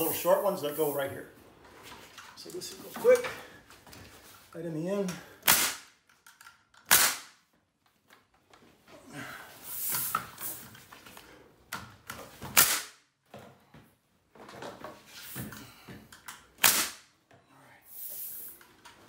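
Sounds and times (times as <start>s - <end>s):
nail gun shots: 5.4s - 6.0s, 6.8s - 7.4s, 12.5s - 13.0s, 16.6s - 17.1s.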